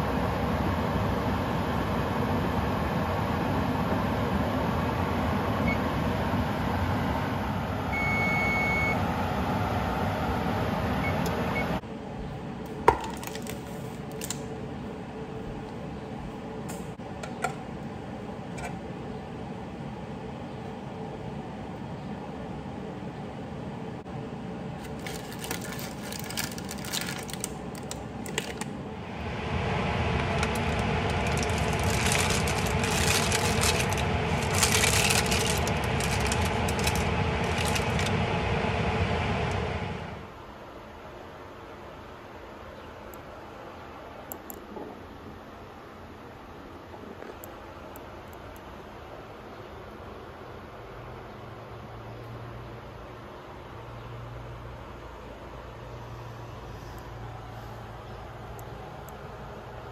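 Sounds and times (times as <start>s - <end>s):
oven control panel beep: 5.6s - 6.0s, 7.9s - 9.0s, 11.0s - 11.8s
low hum: 14.5s - 40.5s
parchment paper crinkling: 24.8s - 28.7s, 30.1s - 38.2s.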